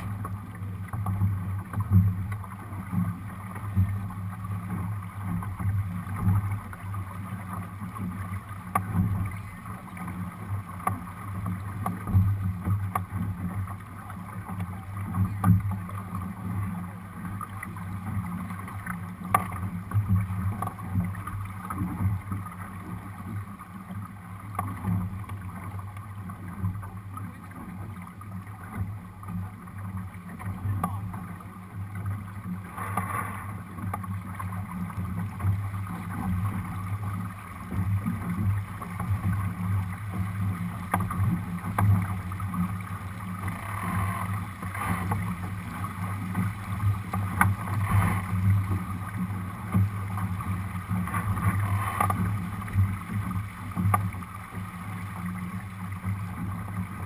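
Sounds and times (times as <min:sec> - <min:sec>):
water running along hull: 0:00.0 - 0:57.0.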